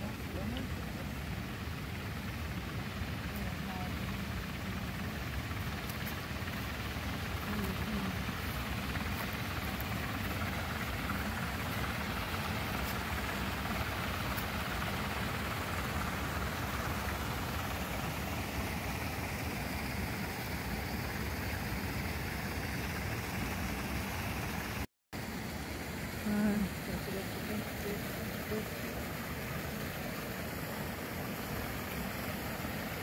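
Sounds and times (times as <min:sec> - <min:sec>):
water pump running: 0:00.0 - 0:33.0
water splashing into pond: 0:04.2 - 0:33.0.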